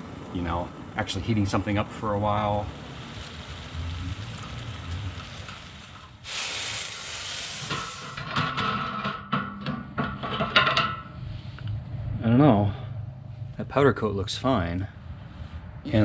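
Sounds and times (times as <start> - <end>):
gas burner hissing: 1.5 - 9.2
loud steam hiss: 2.3 - 8.3.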